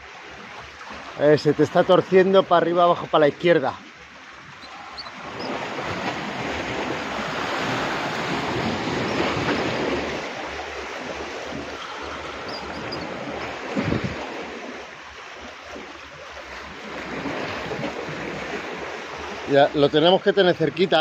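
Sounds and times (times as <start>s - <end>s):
surf washing on shore: 0.0s - 21.0s
wind on microphone: 4.6s - 14.6s.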